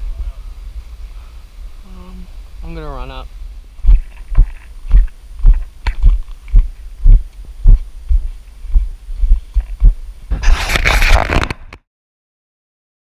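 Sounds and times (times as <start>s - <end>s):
running footsteps thumping: 3.8s - 10.5s.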